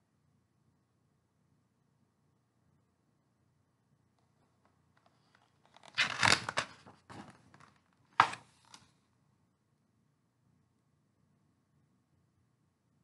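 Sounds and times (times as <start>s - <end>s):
paper rustling: 5.0s - 8.9s
book page snapping down: 5.7s - 8.9s.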